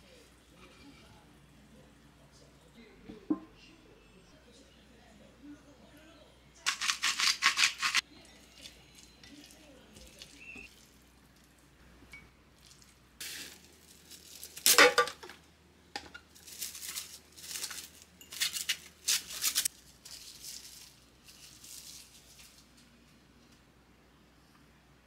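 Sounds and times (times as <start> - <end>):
rustling and crinkling: 12.6 - 15.4, 16.2 - 23.6.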